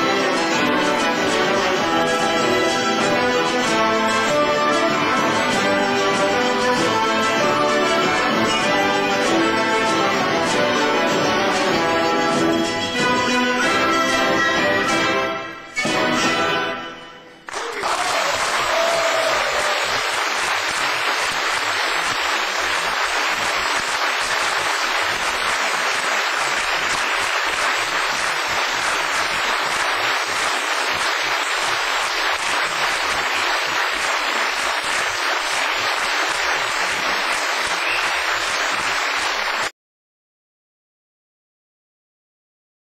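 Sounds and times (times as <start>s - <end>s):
audience applauding: 17.5s - 39.7s.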